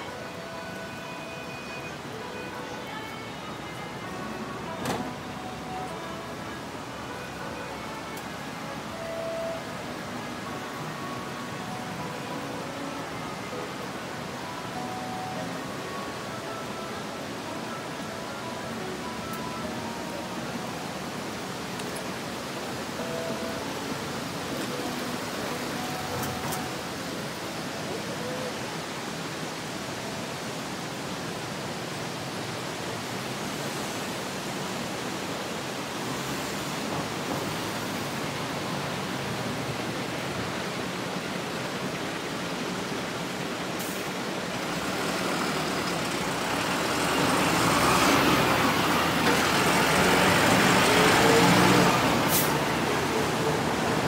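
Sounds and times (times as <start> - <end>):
road traffic hiss: 0.0 - 54.0
vehicle passing close by: 44.8 - 53.8.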